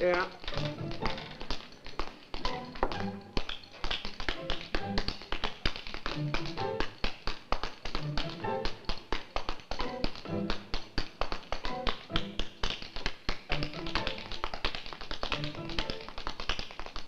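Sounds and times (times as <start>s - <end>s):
tap-dance steps on wooden floor: 0.0s - 17.0s.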